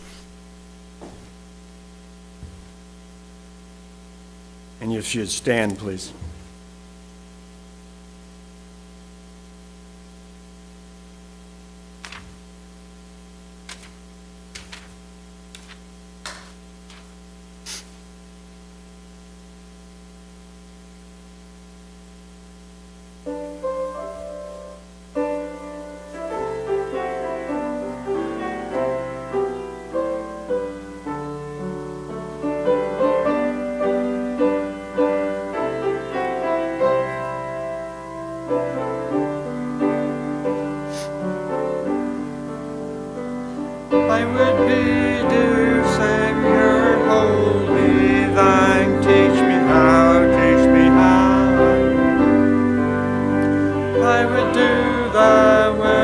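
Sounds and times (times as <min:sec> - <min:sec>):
electrical hum: 0:00.0 - 0:56.0
piano playing hymn: 0:23.2 - 0:56.0.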